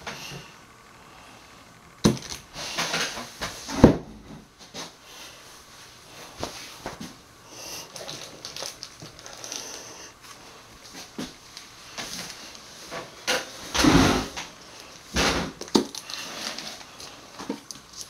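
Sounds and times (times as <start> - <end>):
scraping and rustling: 7.8 - 18.0.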